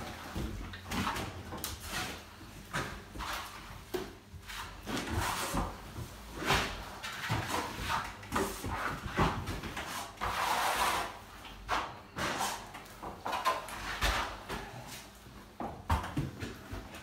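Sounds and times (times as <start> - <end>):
spatula scraping wet plaster: 6.4 - 12.7.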